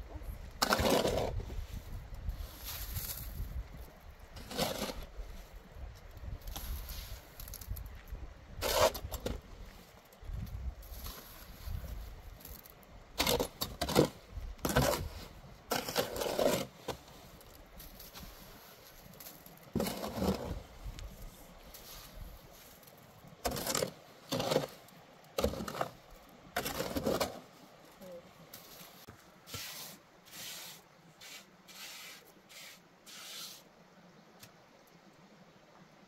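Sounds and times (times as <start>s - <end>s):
short scraping strokes: 28.6s - 33.7s.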